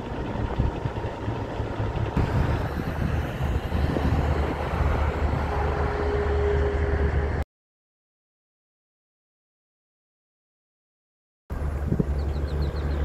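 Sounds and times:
truck driving past: 0.0 - 7.4.

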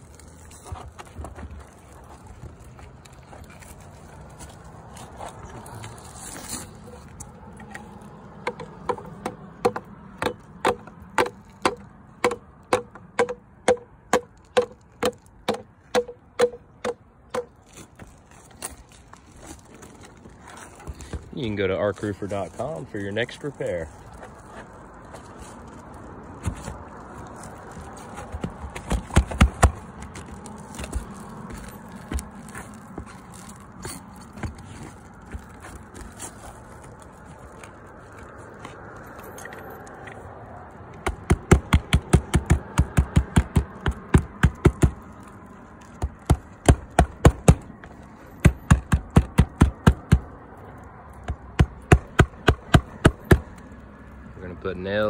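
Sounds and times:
hammer driving nails: 8.5 - 17.5, 41.0 - 45.0, 48.4 - 50.2.

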